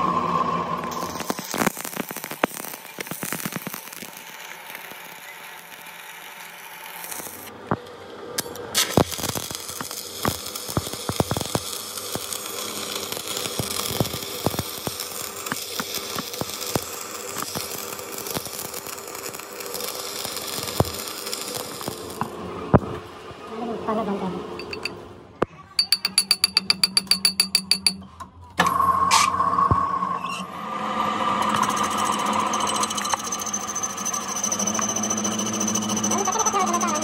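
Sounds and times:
arc welding crackling and popping: 0:00.9 - 0:23.0.

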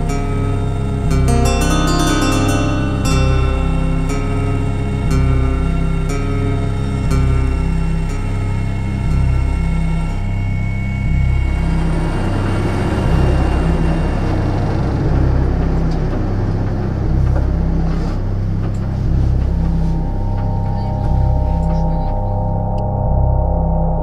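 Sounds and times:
music with pulsing bass: 0:00.0 - 0:24.0
helicopter engine and rotor: 0:03.5 - 0:17.8.

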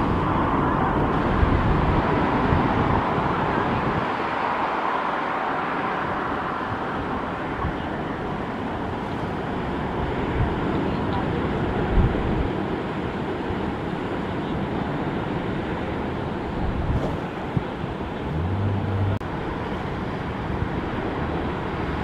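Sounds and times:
steady rushing background noise: 0:00.0 - 0:22.0
wind rumbling on microphone: 0:00.0 - 0:22.0.

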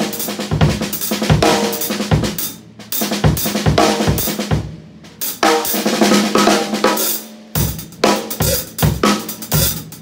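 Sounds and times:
bass drum: 0:00.0 - 0:07.0, 0:07.6 - 0:10.0
snare drum: 0:00.0 - 0:10.0
hi-hats: 0:05.1 - 0:10.0.

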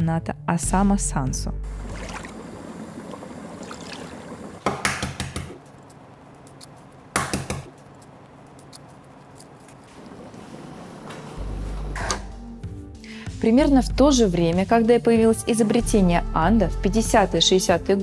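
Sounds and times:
water bubbling in a pot: 0:01.7 - 0:04.6
egg knocking on countertop: 0:04.6 - 0:05.6.

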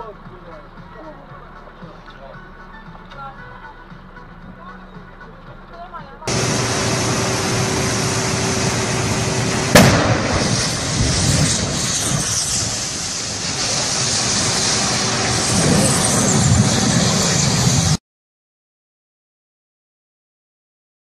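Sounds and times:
vehicle explosion blast: 0:06.3 - 0:17.2
low rumble: 0:06.3 - 0:18.0
steady rushing noise: 0:06.3 - 0:18.0.

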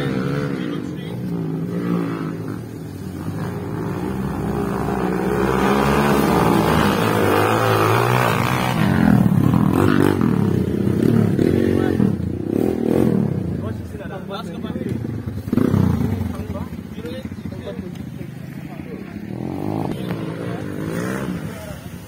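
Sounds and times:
dirt bike engines revving: 0:00.0 - 0:22.0.

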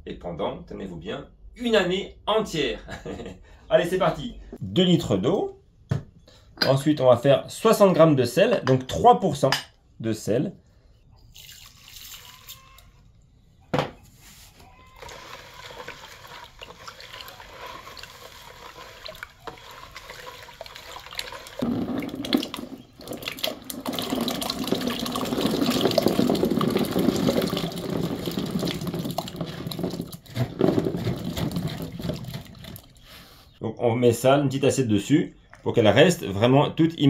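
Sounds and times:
olives poured into water: 0:11.3 - 0:12.4, 0:15.0 - 0:33.0
hand swishing in water: 0:15.0 - 0:21.6.

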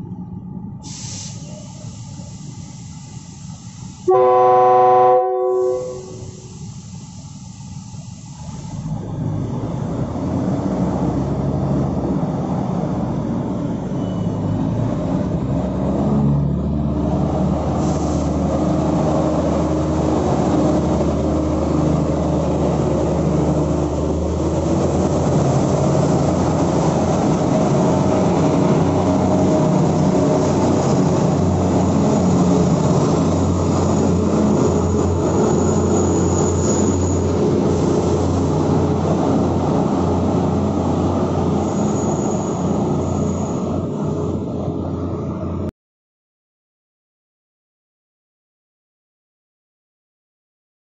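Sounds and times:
diesel train engine rumble: 0:00.0 - 0:45.7
train cars rolling past: 0:05.4 - 0:45.7.

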